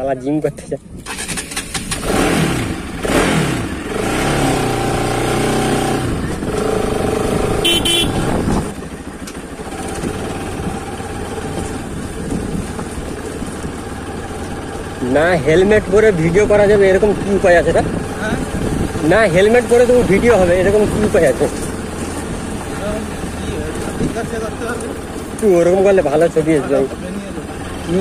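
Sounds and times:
motorcycle engine running: 1.0s - 28.0s
horn toot: 7.4s - 8.6s.

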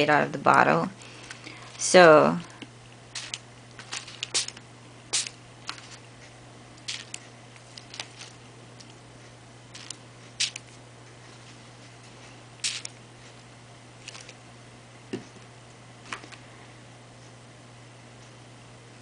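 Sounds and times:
pump spray bottle squirts: 3.2s - 6.0s, 6.9s - 7.2s, 7.8s - 8.4s, 9.8s - 10.6s, 12.6s - 12.9s.

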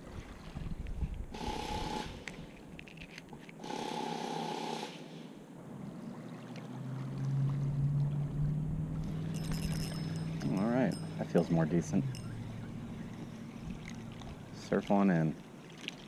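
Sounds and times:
motorboat engine humming: 0.0s - 4.6s, 5.4s - 16.0s
short bursts of noise: 1.3s - 2.5s.

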